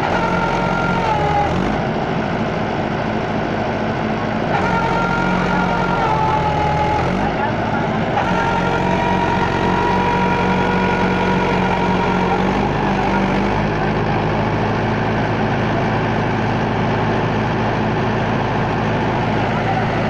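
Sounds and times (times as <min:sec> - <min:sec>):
tractor diesel engine straining: 0:00.0 - 0:20.0
wheels churning mud: 0:00.0 - 0:20.0.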